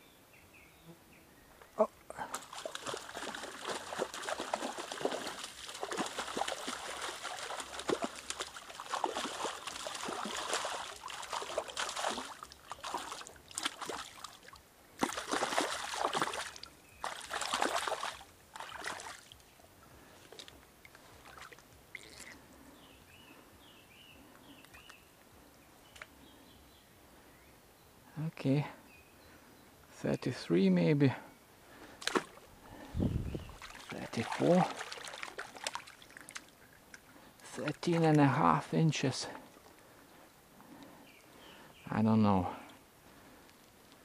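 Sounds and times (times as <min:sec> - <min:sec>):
stream water splashing: 0:02.1 - 0:22.4, 0:31.9 - 0:39.7.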